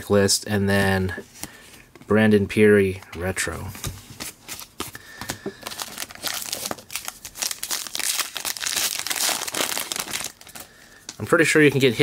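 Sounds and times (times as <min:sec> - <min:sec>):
wrapper crinkling and tearing: 0:05.6 - 0:10.8.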